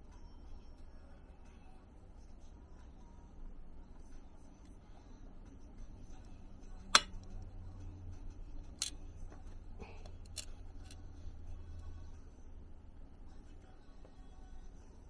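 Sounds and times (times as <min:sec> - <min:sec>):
low steady hum: 0:00.0 - 0:15.0
small hard parts clicking: 0:10.0 - 0:11.1.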